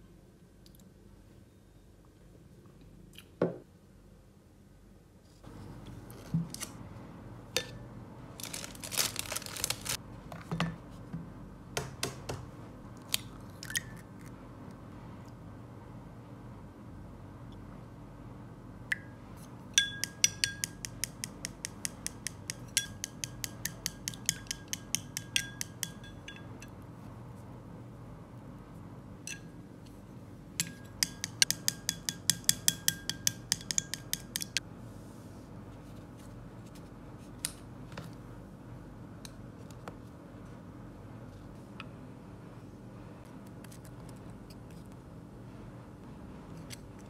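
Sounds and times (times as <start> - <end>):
chopsticks clicking against glass bowl: 19.8 - 26.5, 30.6 - 34.6.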